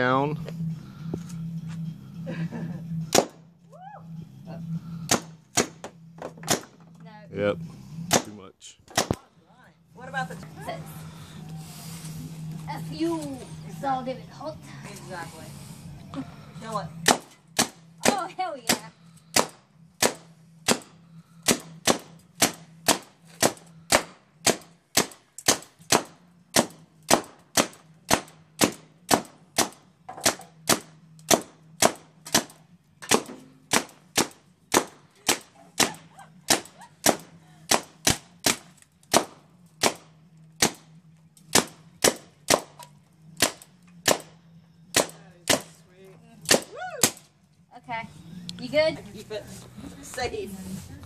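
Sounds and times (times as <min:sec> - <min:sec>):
paintball marker firing pops: 0:08.9 - 0:09.2.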